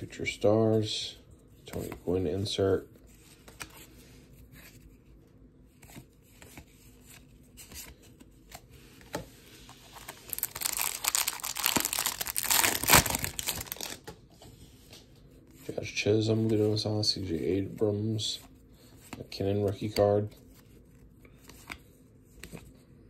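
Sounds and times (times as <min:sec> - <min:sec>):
card pack wrapper crinkling and tearing: 0:09.9 - 0:14.2.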